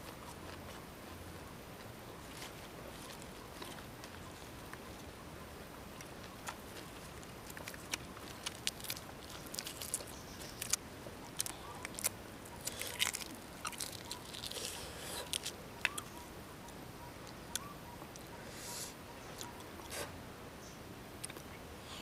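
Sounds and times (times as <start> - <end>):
chewing lettuce: 6.0 - 16.1
crisp leaf crackles: 6.0 - 16.1.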